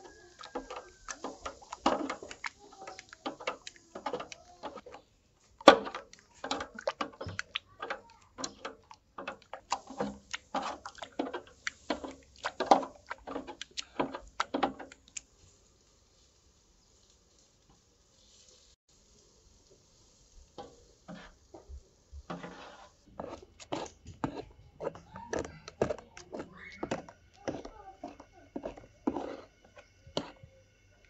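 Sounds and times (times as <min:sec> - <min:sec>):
kitchen utensils clicking and knocking: 0:00.0 - 0:15.0, 0:22.3 - 0:30.5.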